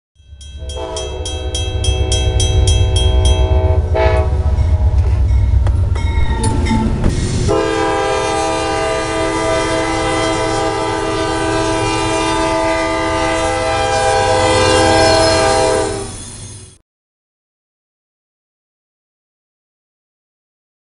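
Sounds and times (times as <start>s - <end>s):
crossing bell dinging: 0.2s - 8.0s
low train rumble: 0.2s - 16.8s
train air horn blowing: 0.6s - 5.5s, 7.4s - 16.2s.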